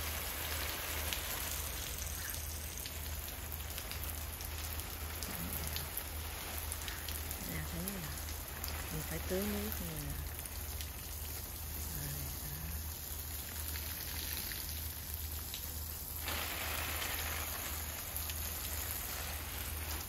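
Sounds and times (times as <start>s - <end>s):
water spraying onto plants: 0.0s - 20.0s.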